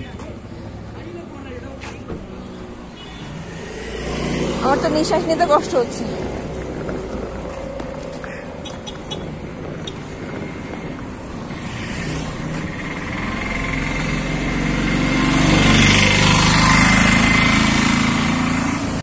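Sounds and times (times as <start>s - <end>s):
vehicle engine approaching: 0.0s - 19.0s.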